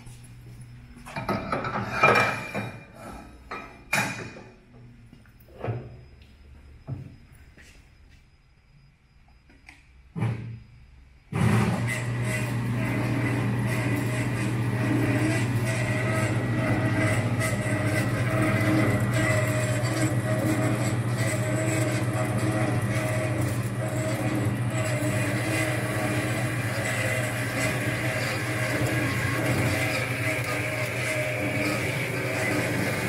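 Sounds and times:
pulsing whine: 0:06.0 - 0:33.0
band saw motor hum: 0:11.4 - 0:33.0.

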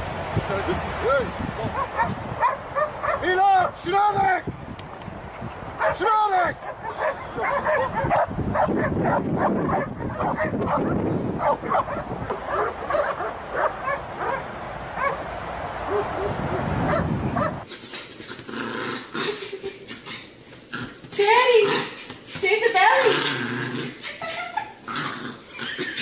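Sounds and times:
dog barking and yipping: 0:01.7 - 0:03.3, 0:05.8 - 0:15.2, 0:15.8 - 0:17.7.

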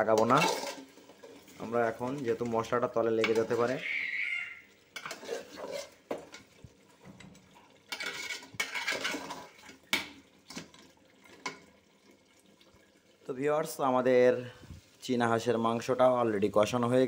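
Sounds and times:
spoon scraping and clinking in pot: 0:00.0 - 0:03.8, 0:05.0 - 0:06.5, 0:07.9 - 0:10.7.

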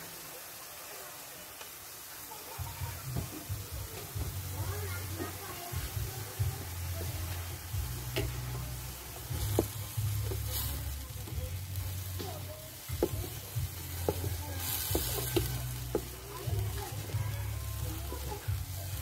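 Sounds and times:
crab meat sizzling in a pan: 0:00.0 - 0:19.0
wooden spatula knocking a pan: 0:08.0 - 0:08.6, 0:09.3 - 0:10.6, 0:12.2 - 0:16.8.

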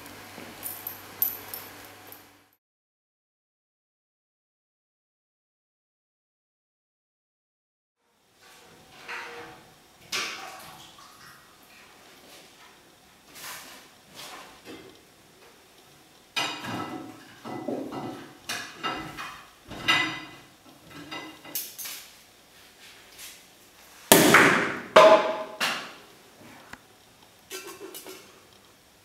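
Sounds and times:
cutlery scraping on shell and plate: 0:27.5 - 0:28.4.

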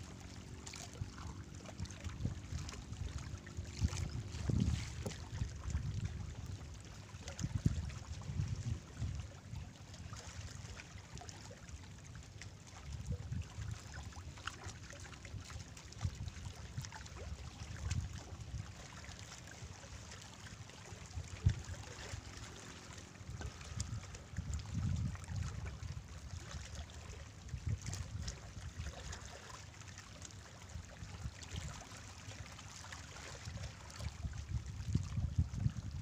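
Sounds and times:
wind rumbling on microphone: 0:00.0 - 0:10.7, 0:12.1 - 0:14.6, 0:15.3 - 0:18.8, 0:20.9 - 0:29.2, 0:33.0 - 0:36.0
water lapping among rocks: 0:00.0 - 0:36.0.

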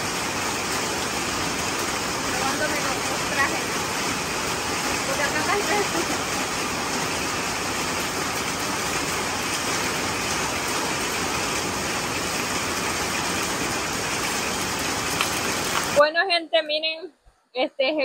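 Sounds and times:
heavy rain on concrete and puddles: 0:00.0 - 0:16.1.

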